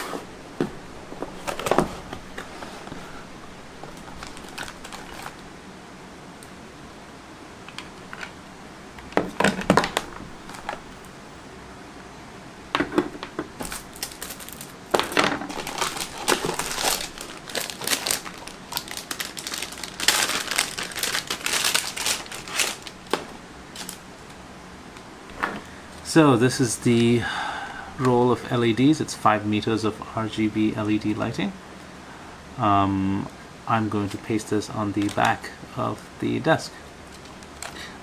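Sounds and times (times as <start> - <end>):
plastic packaging crinkling: 3.8 - 5.4, 9.2 - 11.0, 13.2 - 24.4, 34.9 - 35.5, 37.0 - 38.0
items set down on desk: 12.8 - 13.8, 14.9 - 15.5.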